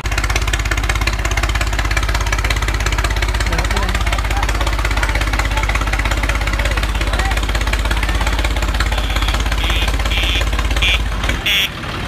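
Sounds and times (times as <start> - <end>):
diesel tractor engine idling: 0.0 - 12.0
short high-pitched beeps: 8.9 - 11.7.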